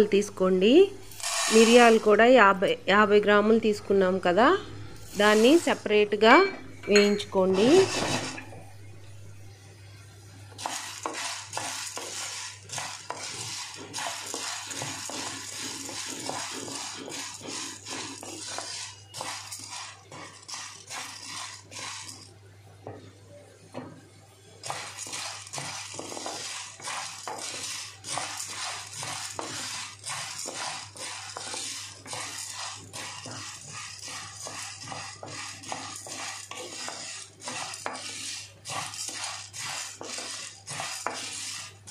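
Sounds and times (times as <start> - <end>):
peppercorns rattling in metal pan: 1.0 - 2.2, 10.6 - 22.3, 24.6 - 41.9.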